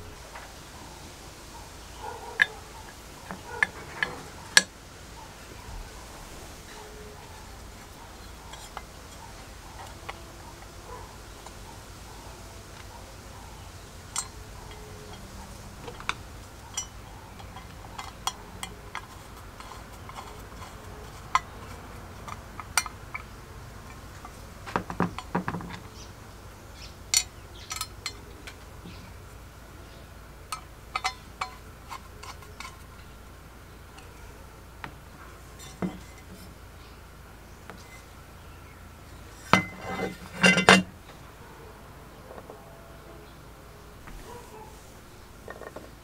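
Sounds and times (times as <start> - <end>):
metal parts clinking: 14.1 - 25.9, 27.1 - 28.6, 30.5 - 33.1, 39.3 - 40.9
light metallic clicks and taps: 30.5 - 32.9.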